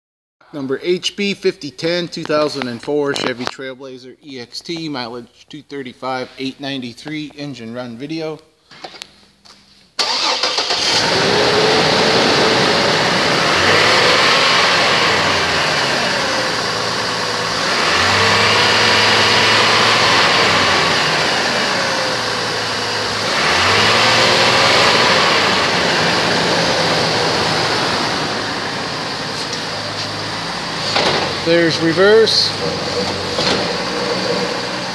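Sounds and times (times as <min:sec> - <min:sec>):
car engine revving: 0:10.0 - 0:34.9.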